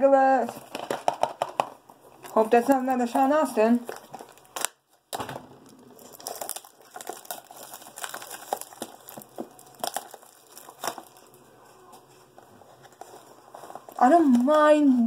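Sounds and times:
cardboard box crinkling and tearing: 0:02.2 - 0:04.8, 0:05.7 - 0:14.5.

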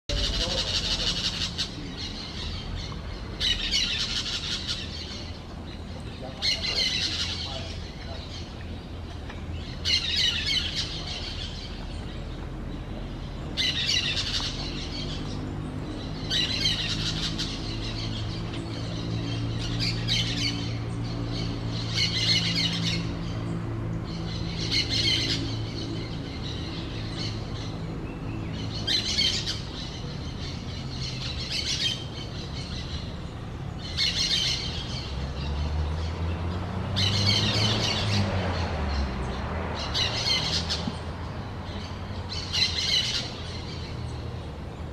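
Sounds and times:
parakeets squawking: 0:00.1 - 0:05.4, 0:06.2 - 0:08.5, 0:09.6 - 0:11.8, 0:13.6 - 0:15.4, 0:16.1 - 0:23.5, 0:24.1 - 0:27.8, 0:28.5 - 0:33.2, 0:33.8 - 0:35.5, 0:41.7 - 0:43.8.

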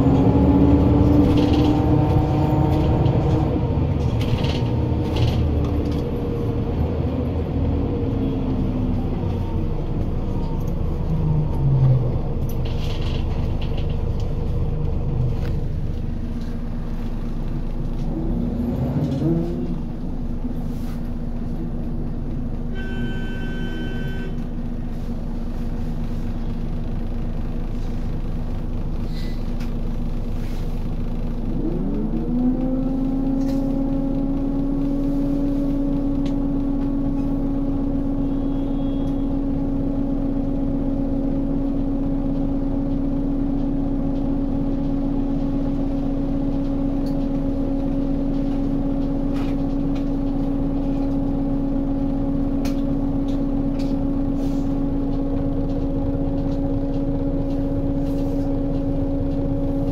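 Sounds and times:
bus diesel engine running: 0:00.0 - 0:59.9
short electronic signal tone: 0:22.7 - 0:24.4.

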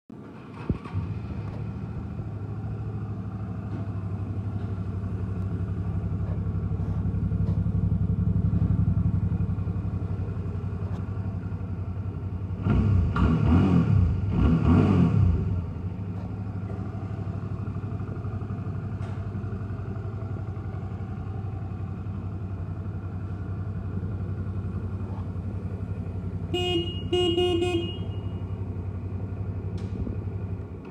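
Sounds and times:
motorcycle engine starting: 0:00.1 - 0:30.9
motorcycle engine idling: 0:00.3 - 0:13.1, 0:15.4 - 0:30.9
motorcycle throttle revs: 0:12.4 - 0:18.0.

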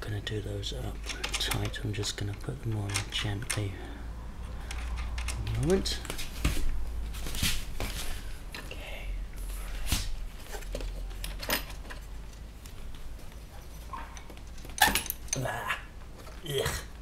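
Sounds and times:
clicks and knocks of handled parts: 0:00.9 - 0:03.8, 0:04.5 - 0:06.6, 0:10.4 - 0:16.4.

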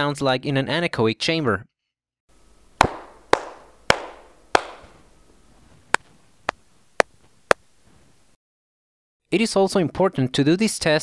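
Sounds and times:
hand claps: 0:02.8 - 0:04.9.

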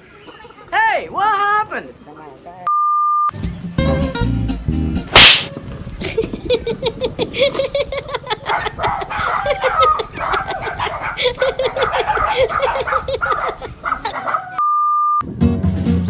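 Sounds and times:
music: 0:03.3 - 0:05.1, 0:15.2 - 0:16.0
rapid short repeated calls: 0:05.2 - 0:05.5
electronic beep: 0:14.6 - 0:15.2.

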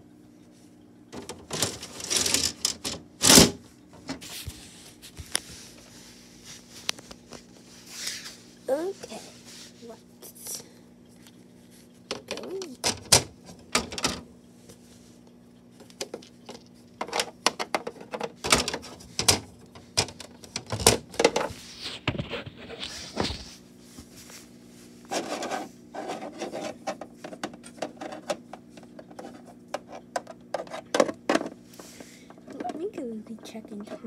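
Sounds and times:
faint steady hum: 0:00.0 - 0:34.0
plastic toys clicking and tapping: 0:01.2 - 0:03.4, 0:12.1 - 0:14.2, 0:32.3 - 0:34.0
plastic rubbing and scraping: 0:01.2 - 0:05.9, 0:17.0 - 0:23.6, 0:25.1 - 0:31.5.

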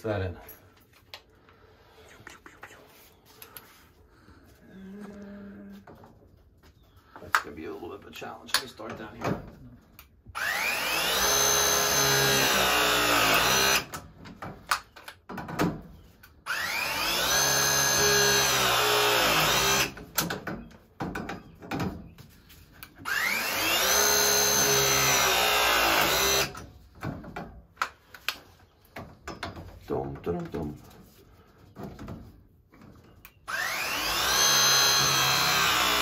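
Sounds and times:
press tool motor whine: 0:33.5 - 0:36.0.

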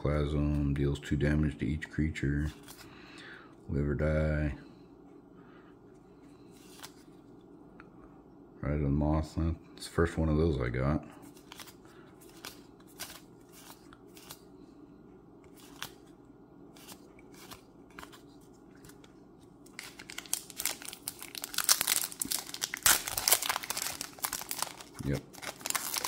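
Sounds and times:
plastic wrapper crinkling and tearing: 0:19.7 - 0:26.0.

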